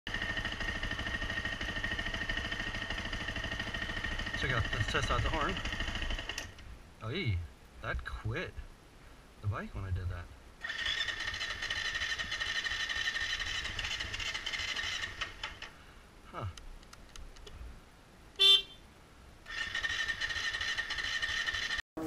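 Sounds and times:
electric starter whining: 10.6 - 15.7
motorcycle horn toot: 18.4 - 18.8.

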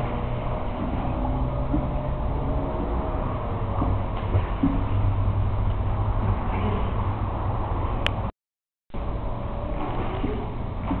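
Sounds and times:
pool water sloshing and splashing: 0.0 - 8.0, 9.2 - 11.0
low rumble on microphone: 0.0 - 8.3.

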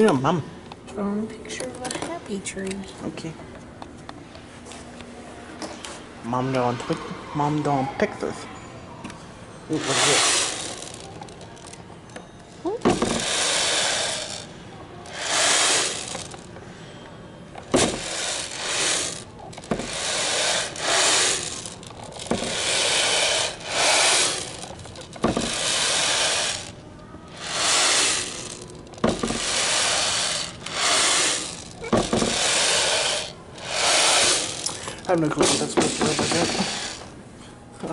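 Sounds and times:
beads rattling: 9.8 - 11.7, 12.9 - 14.5, 15.1 - 16.5, 17.8 - 37.0.

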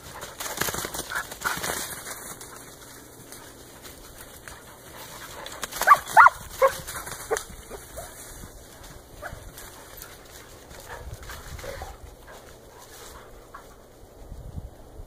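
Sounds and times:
dog yelping barks: 5.8 - 8.1.

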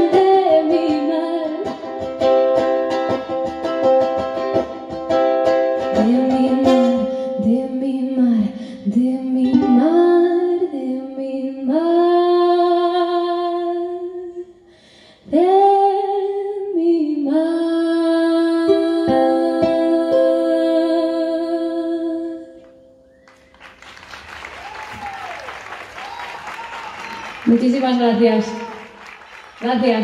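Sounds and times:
woman singing: 0.0 - 1.9, 5.8 - 14.5, 15.2 - 22.6
ukulele strumming: 0.0 - 11.0, 18.5 - 23.1.

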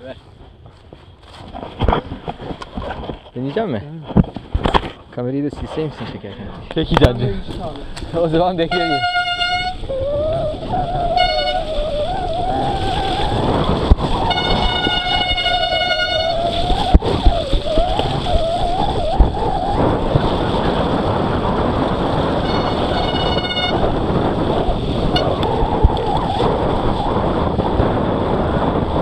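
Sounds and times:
tyre and wind noise: 0.0 - 29.0
freewheel hub buzz: 10.9 - 18.1, 19.7 - 29.0.

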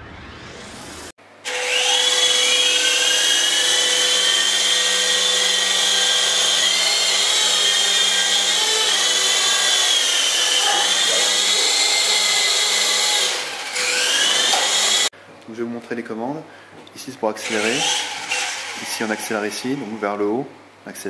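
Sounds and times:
toy helicopter motor whine: 1.4 - 15.1, 17.4 - 19.8.

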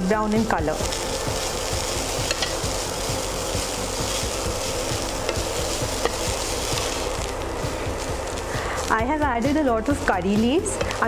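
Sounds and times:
frying sizzle: 0.0 - 11.0
spatula tapping: 2.3 - 2.6, 5.2 - 6.3.

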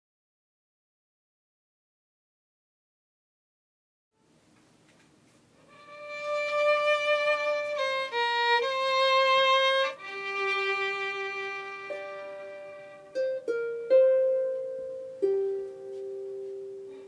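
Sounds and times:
solo fiddle playing slow melody: 5.7 - 13.9.

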